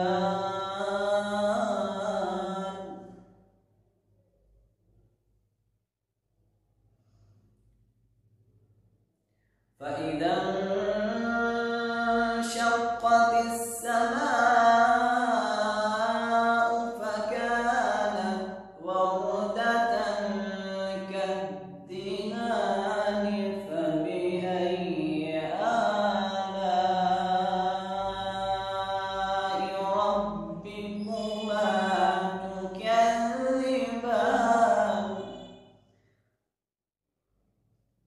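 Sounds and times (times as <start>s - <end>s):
person chanting: 0.0s - 3.4s, 9.8s - 35.6s.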